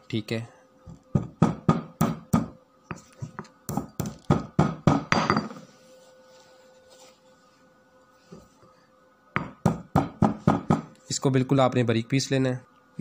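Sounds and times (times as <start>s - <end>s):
pestle pounding in mortar: 1.1s - 2.5s, 3.7s - 5.3s, 9.4s - 10.9s.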